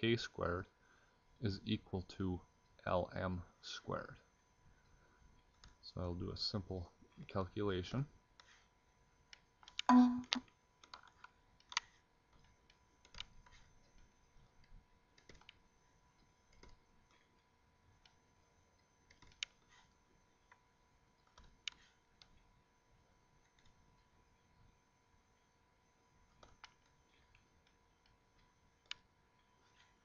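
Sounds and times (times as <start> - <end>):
faint high hum: 0.0 - 30.0
computer mouse clicking: 5.4 - 5.8, 8.4 - 8.6, 9.3 - 18.2, 18.8 - 20.6, 21.2 - 22.5, 23.4 - 24.1, 26.3 - 30.0.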